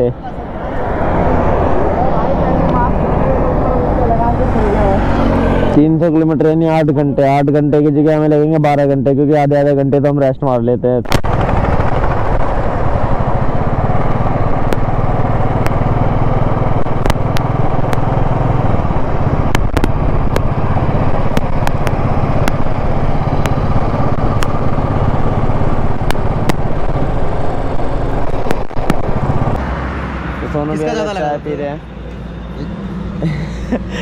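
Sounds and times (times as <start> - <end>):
motorcycle engine cruising: 0.0 - 6.4, 11.2 - 30.6
wind and road noise: 0.0 - 34.0.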